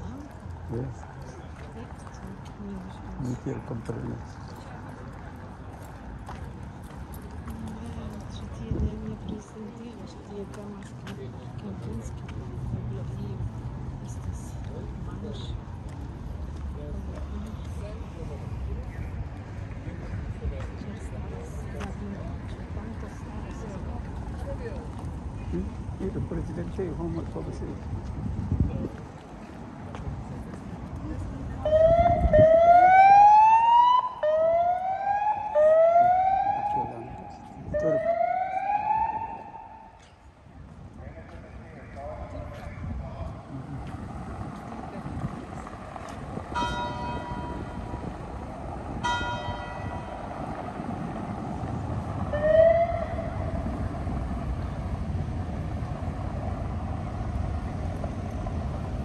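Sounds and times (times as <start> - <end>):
low city rumble: 0.0 - 59.0
emergency vehicle siren: 31.6 - 40.0, 46.5 - 54.9
church bell striking: 46.6 - 47.8, 49.0 - 50.2.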